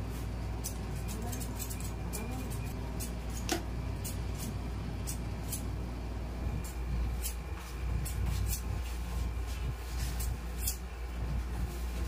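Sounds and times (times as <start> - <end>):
steady low hum: 0.0 - 12.0
scissors snipping hair: 0.6 - 5.6, 10.2 - 10.8.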